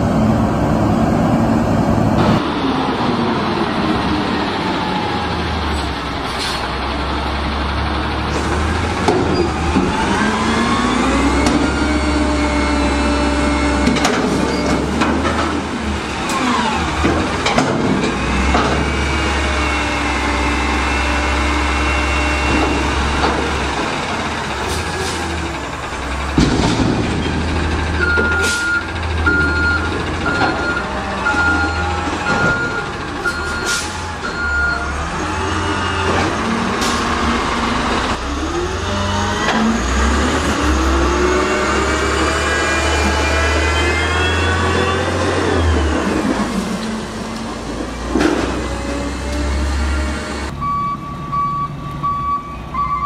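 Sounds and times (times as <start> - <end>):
diesel engine revving: 0.0 - 53.0
metal knocks from dumpster: 26.3 - 27.5.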